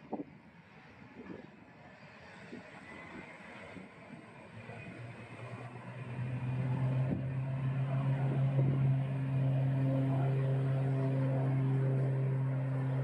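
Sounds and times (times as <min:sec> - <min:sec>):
propeller drone: 0:00.0 - 0:13.0
high engine tone: 0:04.6 - 0:13.0.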